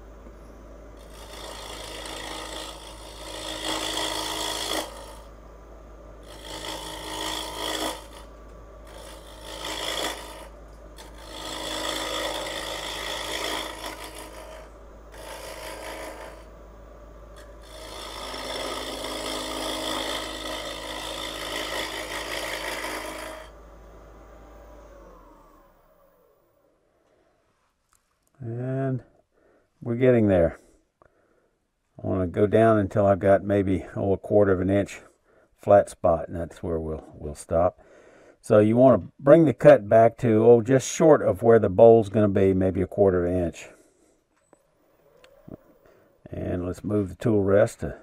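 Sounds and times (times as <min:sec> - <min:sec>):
lathe motor humming: 0:00.0 - 0:26.7
lathe tool scraping wood: 0:00.6 - 0:26.4.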